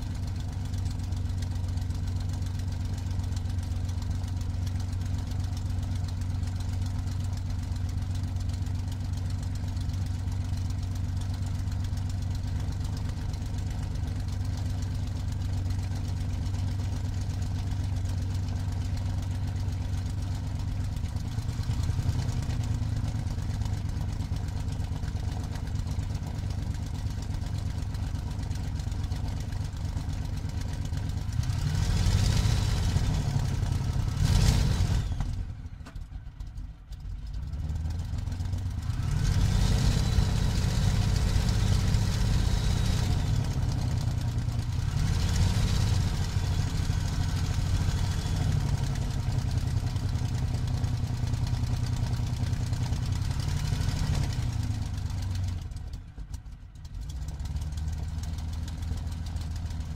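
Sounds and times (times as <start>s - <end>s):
aircraft piston engine running: 38.3s - 56.3s.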